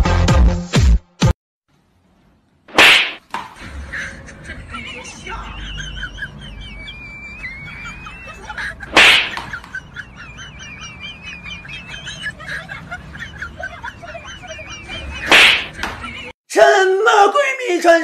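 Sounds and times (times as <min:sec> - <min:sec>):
whip-like swishes: 0:02.7 - 0:03.2, 0:08.9 - 0:09.5, 0:15.3 - 0:15.7.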